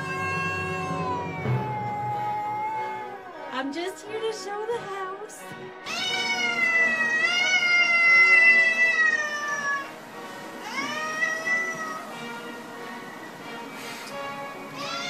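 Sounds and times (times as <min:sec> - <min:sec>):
cat yowling angrily: 0:00.0 - 0:03.5, 0:05.8 - 0:10.0, 0:10.6 - 0:12.1, 0:14.8 - 0:15.0.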